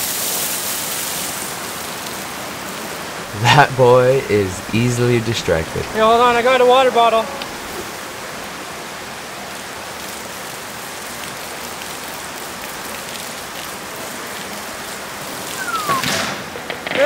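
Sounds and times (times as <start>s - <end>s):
water pouring onto rocks: 0.0s - 3.2s, 8.6s - 15.6s
creek flowing: 1.2s - 16.2s
whistle falling in pitch: 15.6s - 16.4s.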